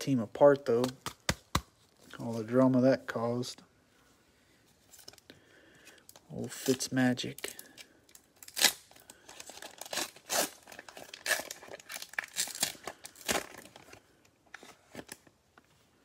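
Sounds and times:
foil pack tearing and crinkling: 8.4 - 13.9.

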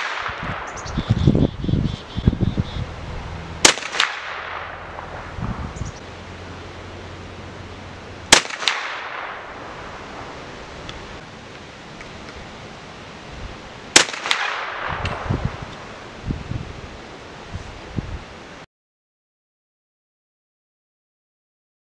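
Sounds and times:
rifle shots: 0.0 - 0.9, 3.6 - 5.5, 8.3 - 10.0, 13.9 - 15.3
faint echo crack: 3.6 - 5.4, 8.3 - 9.6.

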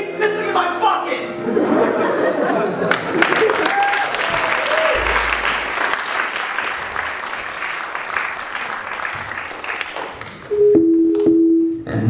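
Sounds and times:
audience applauding: 2.8 - 10.5.

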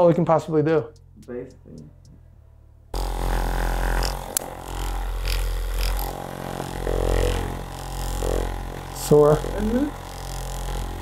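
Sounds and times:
massage gun buzzing: 2.9 - 11.0.

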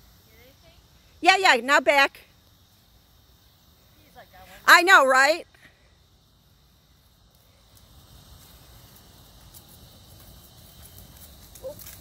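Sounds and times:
insects chirring: 0.0 - 12.0
horse hooves on grass: 6.9 - 12.0.

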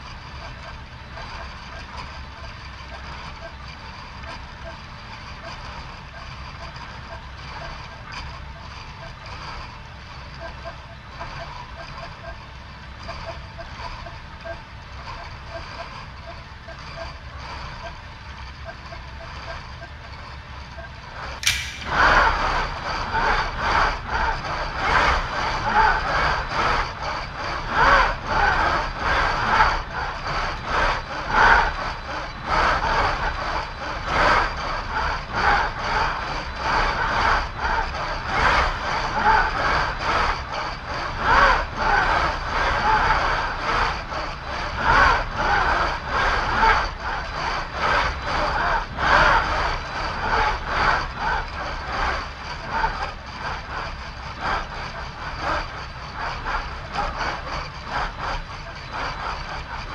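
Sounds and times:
servo actuators whirring in pulses: 1.4 - 59.9
steady high whine: 7.8 - 42.6
low rumble: 21.4 - 22.6.

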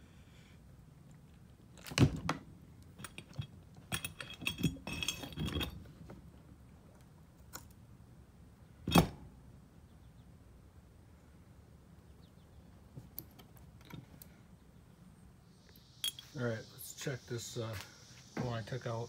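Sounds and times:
metal parts clinking and knocking: 3.0 - 5.8, 16.0 - 16.3.

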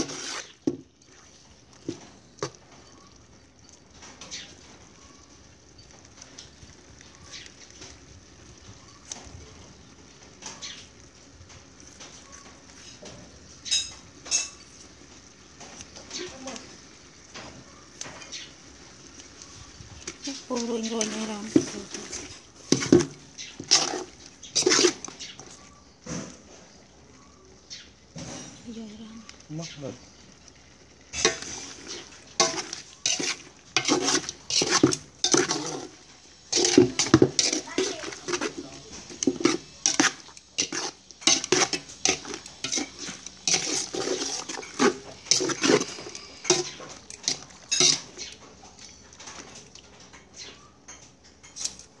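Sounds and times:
metal tongs scraping a pot: 0.0 - 0.6, 13.7 - 14.8, 20.0 - 25.6, 31.1 - 49.6.

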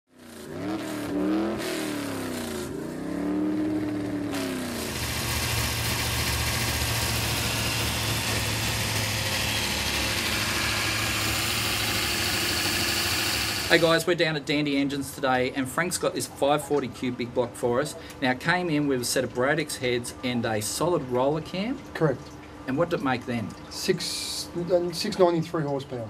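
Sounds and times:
engine revving: 0.1 - 13.9.

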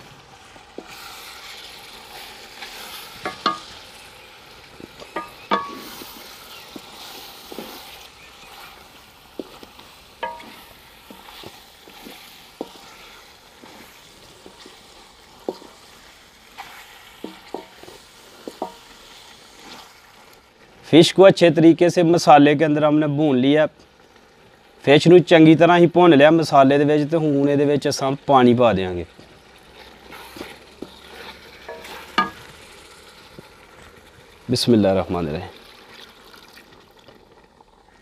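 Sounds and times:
fish sizzling in a pot: 0.0 - 38.0
wooden spatula scraping a pot: 0.1 - 20.9, 29.2 - 32.8.

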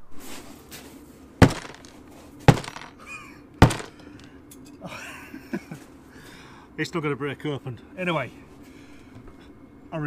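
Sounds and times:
ice block banged on worktop: 1.4 - 2.9, 3.6 - 4.2.

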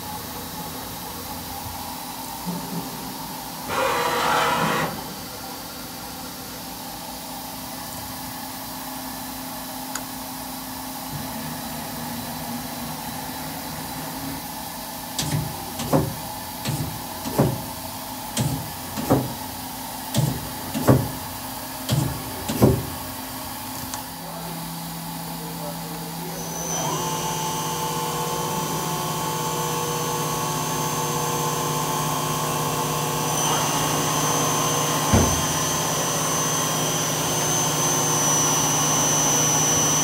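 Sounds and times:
turret whir and clunk: 15.2 - 17.6, 18.4 - 19.4, 20.1 - 21.2, 21.9 - 22.9, 33.3 - 37.5
machine hum: 24.2 - 40.0.

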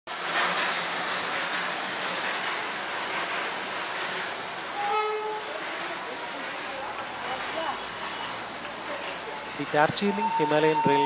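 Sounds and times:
steam hissing: 0.1 - 11.0
steam whistle blast: 4.8 - 5.5, 10.0 - 11.0.

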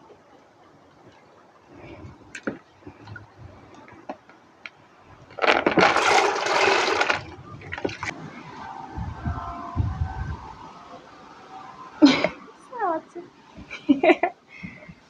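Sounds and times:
water rushing and splashing: 0.0 - 12.6
clicks of grains in water: 5.3 - 8.1.

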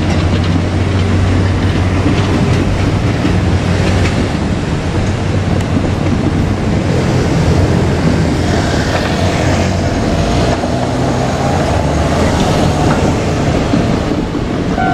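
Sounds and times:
diesel railcar engine drone: 0.0 - 14.9.

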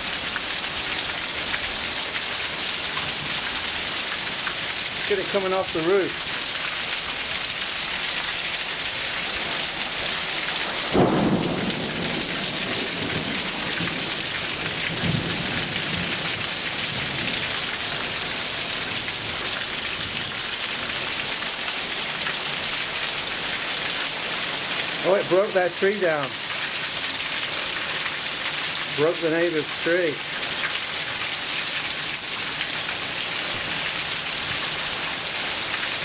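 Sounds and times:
heavy rain pounding: 0.0 - 36.0
water pouring off roof: 0.0 - 36.0
thunder boom: 10.9 - 13.4
low thunder rumble: 10.9 - 16.2.

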